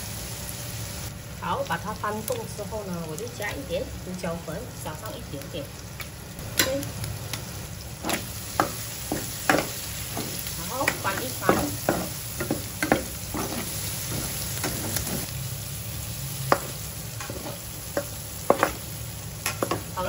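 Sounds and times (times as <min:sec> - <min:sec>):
scallops sizzling in a pan: 0:00.0 - 0:20.0
metal spatula scraping a pan: 0:08.0 - 0:15.3, 0:16.5 - 0:18.8.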